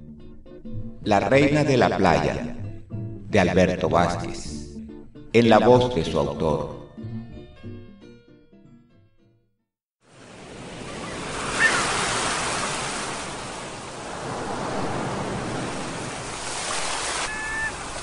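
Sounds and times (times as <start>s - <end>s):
ocean waves breaking on beach: 10.0s - 18.0s.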